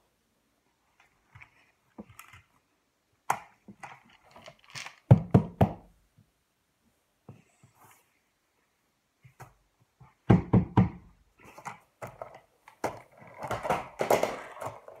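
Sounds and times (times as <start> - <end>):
plastic toys clicking and knocking: 3.2 - 5.9, 11.5 - 15.0.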